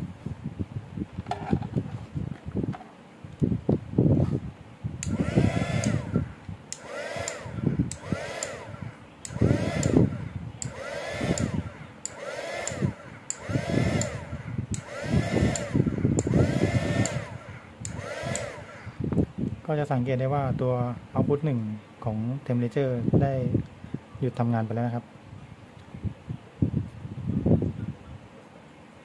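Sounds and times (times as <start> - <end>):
hair dryer blowing: 5.0 - 19.2.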